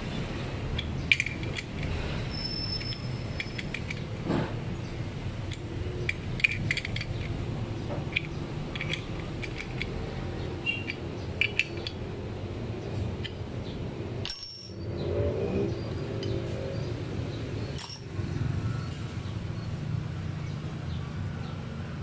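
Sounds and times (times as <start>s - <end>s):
metal parts clicking and clinking: 0.7s - 4.6s, 5.4s - 12.2s, 12.9s - 15.0s, 17.7s - 18.2s.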